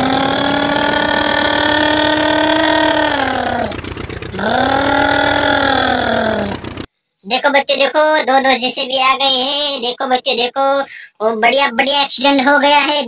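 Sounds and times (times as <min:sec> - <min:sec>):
toy vehicle motor buzzing: 0:00.0 - 0:06.7.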